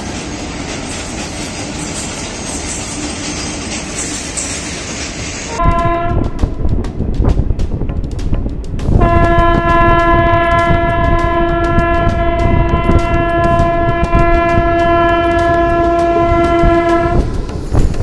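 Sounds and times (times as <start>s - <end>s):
train wheels clacking on rails: 0.0s - 18.0s
train horn blast: 5.5s - 6.4s, 9.0s - 17.3s.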